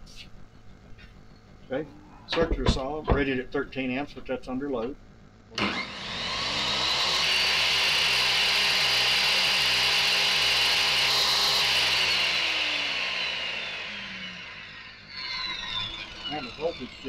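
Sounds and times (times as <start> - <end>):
circular saw motor whine: 5.5 - 17.0.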